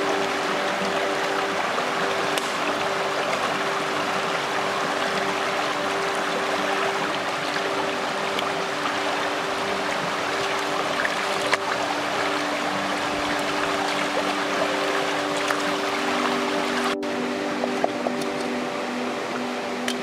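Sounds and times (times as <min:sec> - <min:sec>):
stream rushing over rocks: 0:00.0 - 0:20.0.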